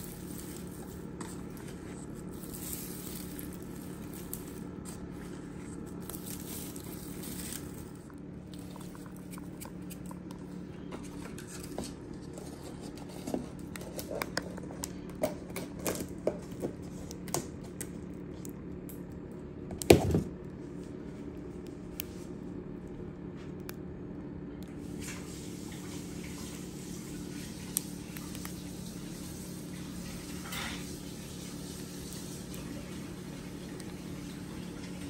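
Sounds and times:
pork rinds crackling: 0:00.0 - 0:05.2, 0:05.8 - 0:10.3
steady low hum: 0:00.0 - 0:35.0.

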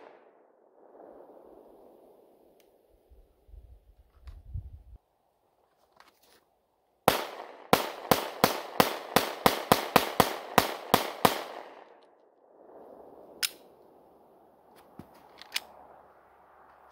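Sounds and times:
pistol shots echoing: 0:07.1 - 0:12.0.

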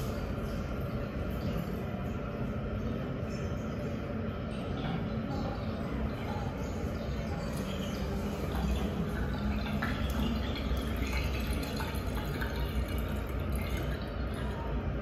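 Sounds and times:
water running down urinal: 0:00.0 - 0:15.0
water dripping into drain: 0:04.4 - 0:15.0.

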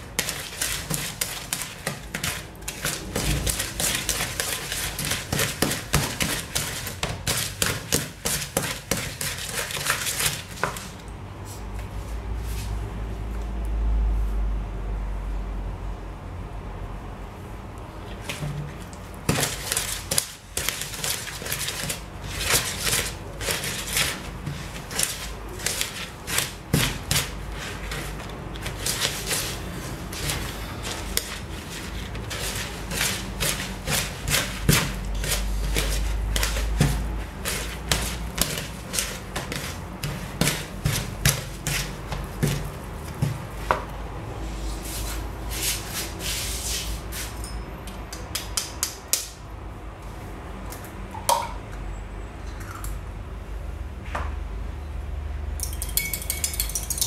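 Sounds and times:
wooden spoon beating in plastic bowl: 0:00.0 - 0:10.9, 0:19.2 - 0:43.9.

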